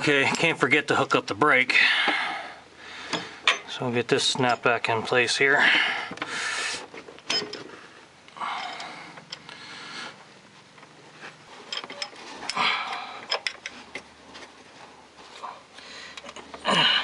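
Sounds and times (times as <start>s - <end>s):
light metal clicks and scraping: 3.1s - 5.2s, 7.0s - 7.8s, 10.6s - 16.6s
soft rubbing noises: 10.1s - 12.5s, 13.8s - 15.8s.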